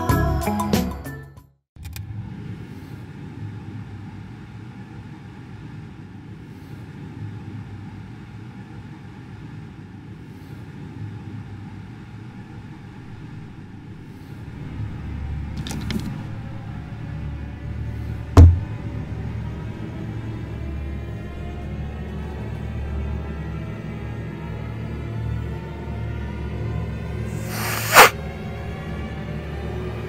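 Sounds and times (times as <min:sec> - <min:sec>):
steady low rumble: 0:03.2 - 0:25.2
rustles and knocks in cupboard: 0:18.4 - 0:18.7
faint soft hisses: 0:27.4 - 0:28.1.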